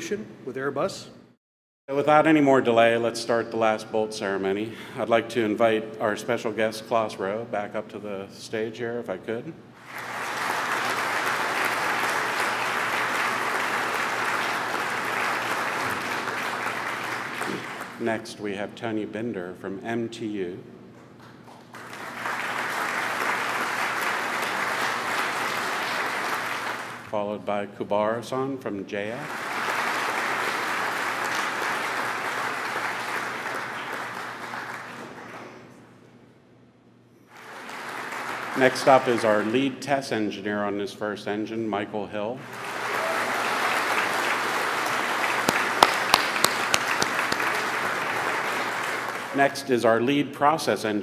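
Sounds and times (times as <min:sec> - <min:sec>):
audience applauding: 0:09.8 - 0:18.0, 0:21.4 - 0:27.0, 0:29.1 - 0:35.6, 0:37.3 - 0:39.8, 0:42.4 - 0:49.6.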